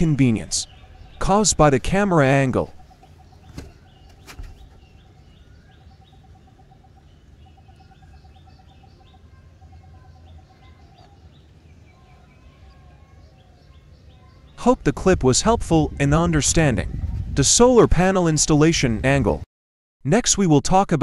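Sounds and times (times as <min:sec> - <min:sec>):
steady low rumble: 0:00.0 - 0:10.6, 0:14.6 - 0:17.8
fast pulsing bird call: 0:00.0 - 0:14.6
birds chirping: 0:00.0 - 0:17.2.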